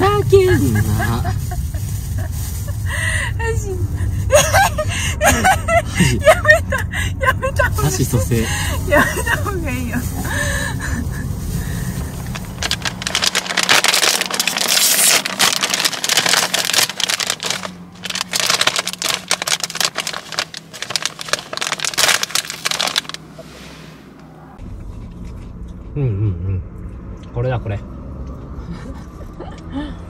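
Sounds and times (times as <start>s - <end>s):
crackling and rustling: 0.5s - 2.9s, 9.0s - 23.5s.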